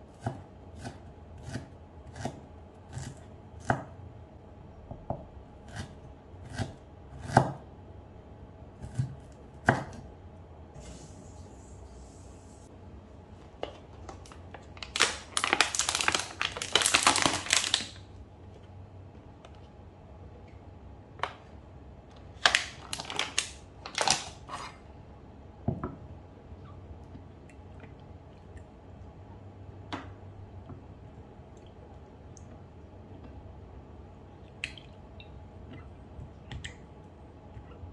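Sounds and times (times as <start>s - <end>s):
plastic packaging crinkling: 13.6s - 18.1s, 22.2s - 24.5s.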